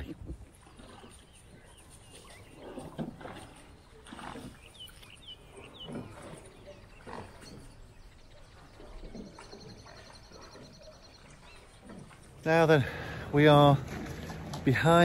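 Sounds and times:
bird chirps: 0:04.4 - 0:12.0.

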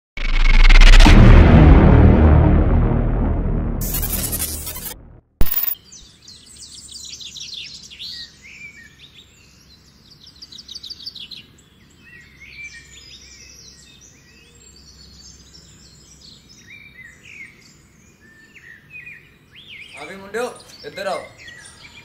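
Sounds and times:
low outdoor rumble: 0:00.2 - 0:05.2
songbirds chirping and singing: 0:05.8 - 0:22.0.

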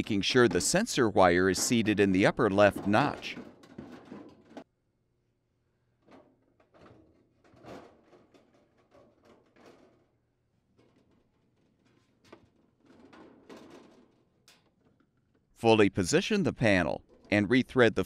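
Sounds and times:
plastic panel scraping and knocking: 0:00.4 - 0:04.7, 0:06.0 - 0:15.4.

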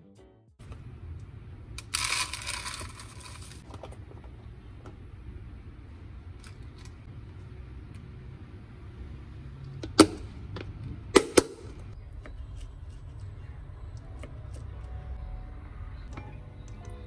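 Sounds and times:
low steady hum: 0:00.2 - 0:17.0
oats pouring into container: 0:01.8 - 0:03.6.

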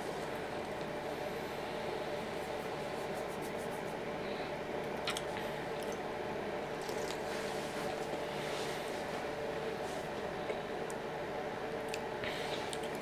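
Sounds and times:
background hum: 0:00.0 - 0:13.0
sipping and swallowing soda: 0:06.7 - 0:07.4.

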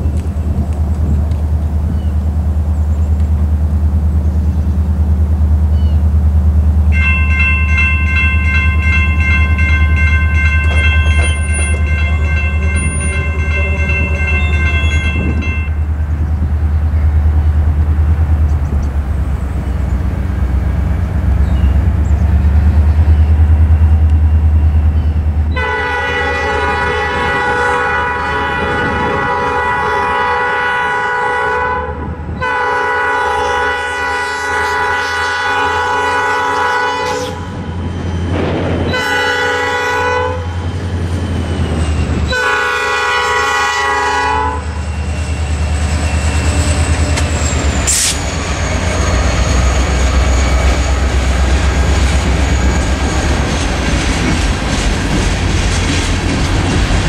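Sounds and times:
heavy low rumble: 0:00.0 - 0:07.0, 0:09.0 - 0:25.6, 0:44.6 - 0:57.0
locomotive air horn: 0:06.9 - 0:15.9, 0:25.5 - 0:37.8, 0:38.8 - 0:40.7, 0:42.3 - 0:44.9.

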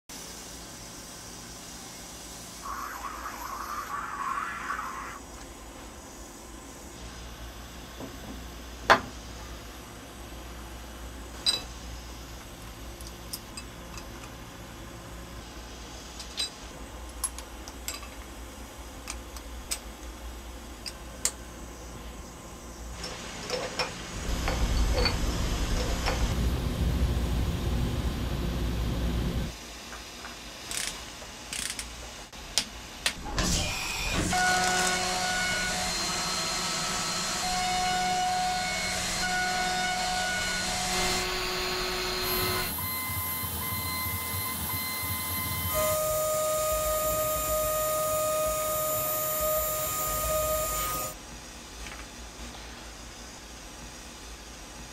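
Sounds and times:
mill spindle high whine: 0:01.8 - 0:08.4, 0:33.4 - 0:51.2
loud low rushing noise: 0:02.6 - 0:05.3, 0:24.2 - 0:29.5.

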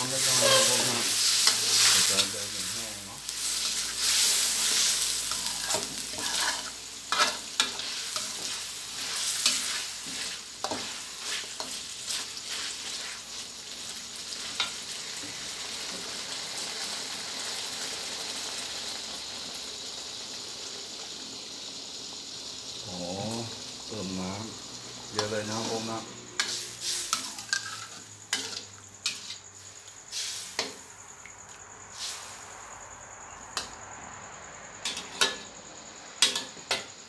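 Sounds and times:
spatula scraping and knocking pan: 0:00.0 - 0:02.3, 0:03.4 - 0:13.2, 0:26.4 - 0:29.5
chicken sizzling in a wok: 0:00.0 - 0:37.0.

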